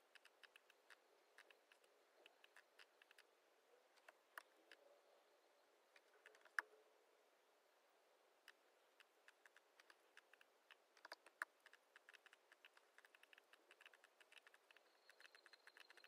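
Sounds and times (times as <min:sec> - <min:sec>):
keyboard and mouse clicking: 0:00.0 - 0:03.3, 0:06.0 - 0:06.7, 0:08.4 - 0:16.0.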